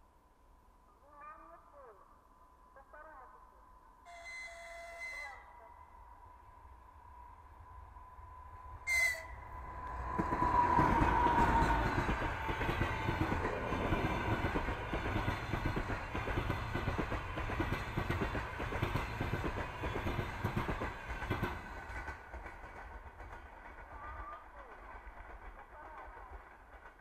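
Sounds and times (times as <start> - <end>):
train horn toot: 4.1 - 5.8, 8.8 - 9.5.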